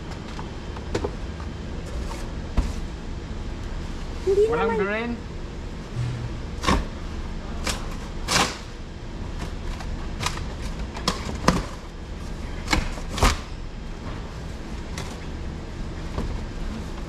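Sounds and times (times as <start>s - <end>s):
low hum: 5.8s - 7.7s.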